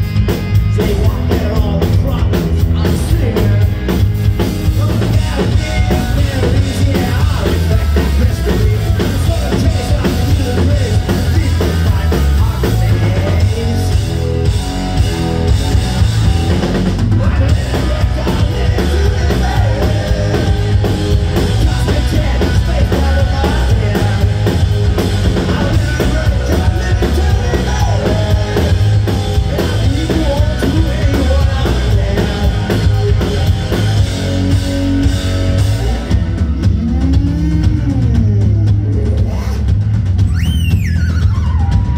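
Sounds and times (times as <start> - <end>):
bass guitar: 0.0 - 41.9
drum kit: 0.0 - 41.9
electric guitars: 0.0 - 41.9
person singing: 4.8 - 14.0, 17.1 - 24.6, 25.4 - 33.8, 36.4 - 39.6.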